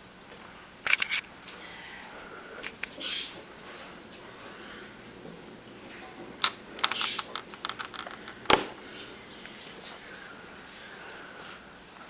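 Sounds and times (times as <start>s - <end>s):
clicks and taps of small objects: 6.4s - 8.7s.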